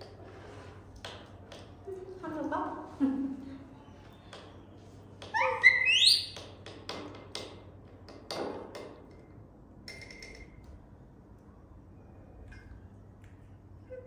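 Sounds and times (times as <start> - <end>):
baby monkey squealing: 5.3 - 6.4.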